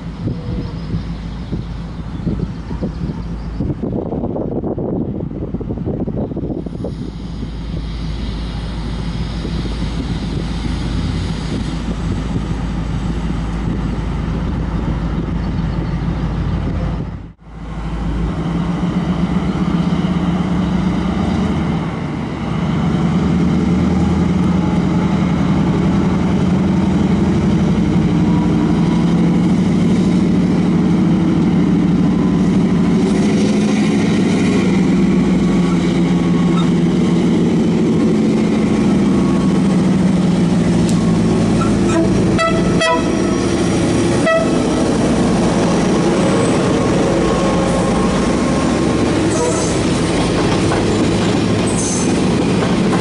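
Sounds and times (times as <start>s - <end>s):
diesel locomotive engine drone: 0.0s - 53.0s.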